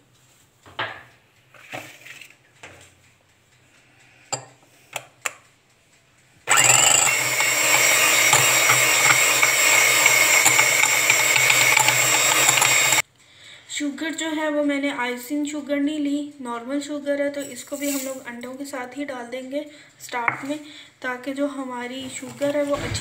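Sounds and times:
electric hand mixer whisking: 0:06.5 - 0:13.0.

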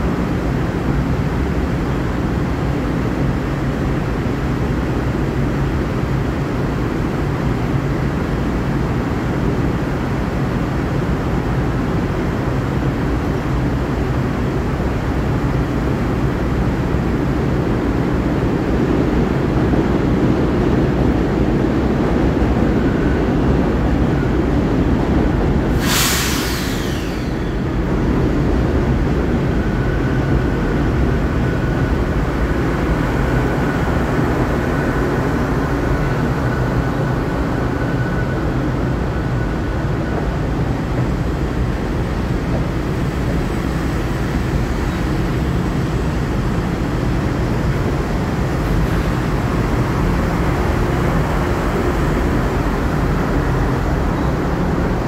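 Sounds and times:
sharp descending hiss: 0:25.7 - 0:27.9.

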